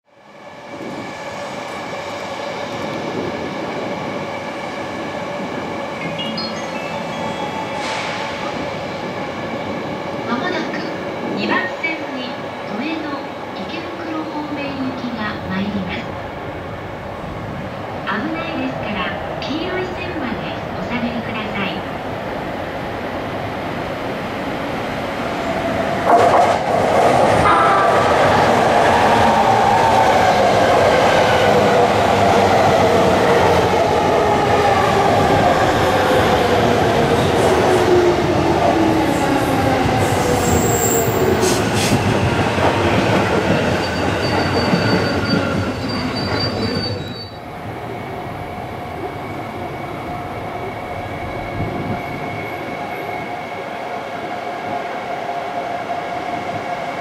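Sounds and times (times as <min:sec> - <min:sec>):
rising high tones: 0:05.9 - 0:09.5
train wheels rumbling on rails: 0:23.2 - 0:53.6.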